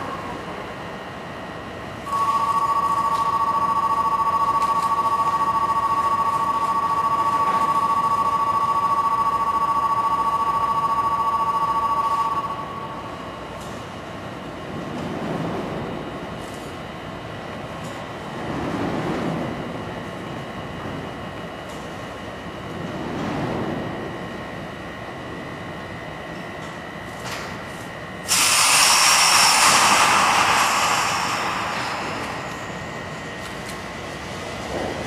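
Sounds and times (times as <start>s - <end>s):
underground station hum: 0.0s - 35.0s
two-tone electronic ring: 2.1s - 13.0s.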